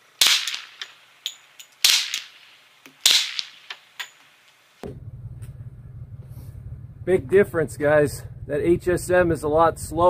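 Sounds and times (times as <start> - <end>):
suppressed pistol shots: 0.2 - 0.9, 1.8 - 2.4, 3.0 - 3.8
steady low rumble: 4.8 - 10.0.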